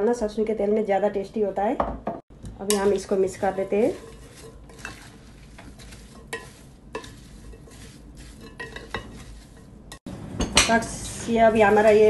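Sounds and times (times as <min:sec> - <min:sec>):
wooden spatula stirring in glass bowl: 0:02.7 - 0:10.1.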